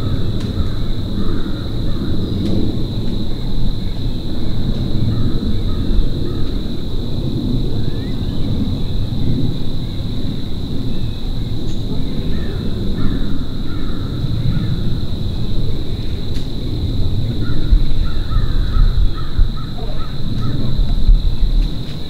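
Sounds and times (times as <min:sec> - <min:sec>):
crows cawing: 0:00.0 - 0:02.3, 0:05.1 - 0:06.6, 0:12.3 - 0:15.0, 0:17.4 - 0:20.7
low uneven rumble: 0:00.0 - 0:22.0.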